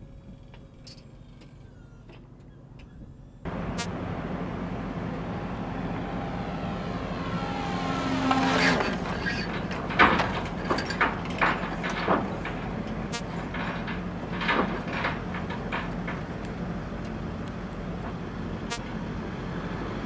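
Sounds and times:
drone propeller engine buzzing: 3.5s - 11.7s.

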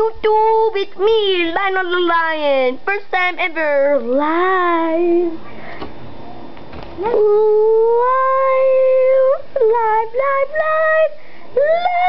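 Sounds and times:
child singing high notes: 7.0s - 12.0s.

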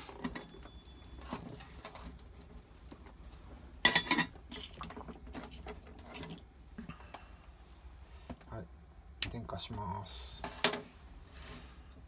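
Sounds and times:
metal cookware clinking: 3.8s - 4.4s.

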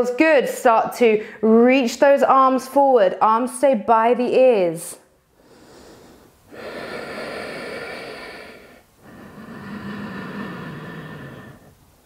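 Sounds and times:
woman breathing deeply: 5.3s - 12.0s.

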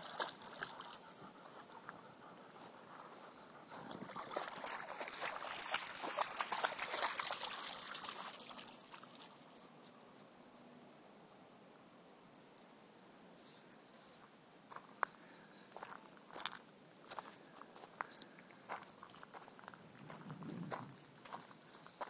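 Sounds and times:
water splashing: 3.7s - 9.4s.

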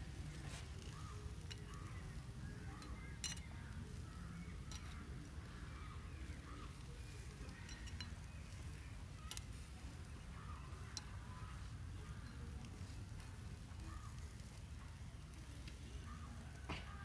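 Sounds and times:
metal utensil clinking on grill rack: 2.8s - 3.5s, 7.5s - 8.2s.

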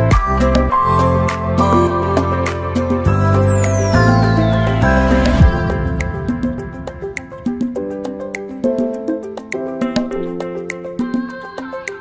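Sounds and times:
synth music with steady beat: 0.0s - 12.0s
high sweep gliding downward: 3.0s - 8.3s.

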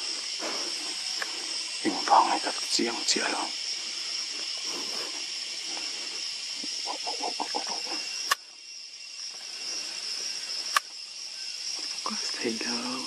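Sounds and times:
high-pitched insect drone: 0.0s - 13.0s
bird calling low notes: 6.4s - 8.4s
sharp clicks: 7.5s - 8.5s, 10.7s - 11.0s.

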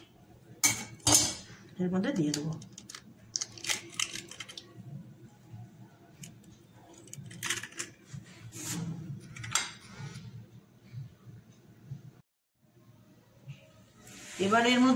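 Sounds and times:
eggshell clicks and rustles: 2.4s - 4.7s.

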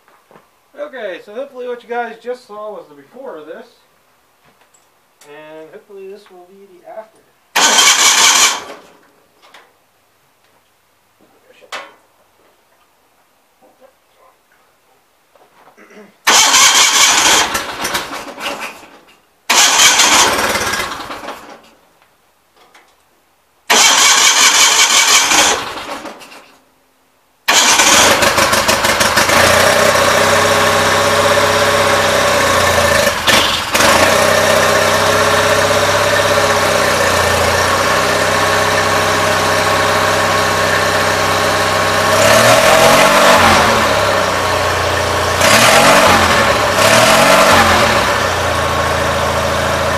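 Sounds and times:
engine cranking and starting: 7.5s - 9.0s, 16.3s - 21.8s, 23.7s - 26.6s, 27.5s - 44.4s.

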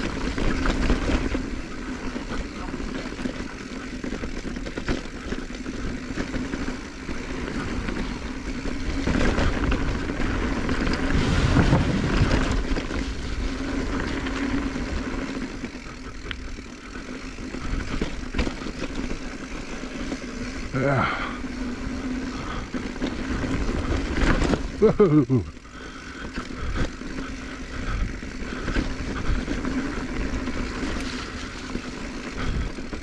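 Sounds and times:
bike rattling clicks and knocks: 0.0s - 33.0s
tyres rushing on dirt: 0.0s - 33.0s.

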